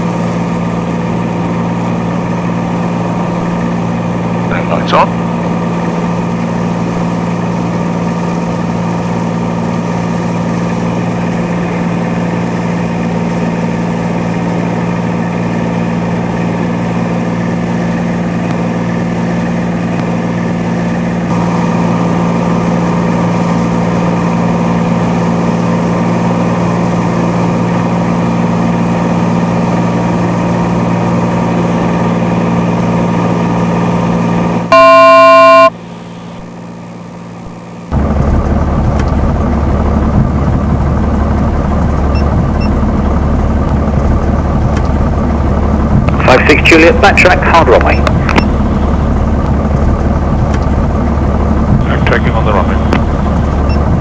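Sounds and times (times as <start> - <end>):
airplane engine and propeller droning: 0.0 - 54.0
loud multi-pitch tone: 34.7 - 36.6, 51.8 - 54.0.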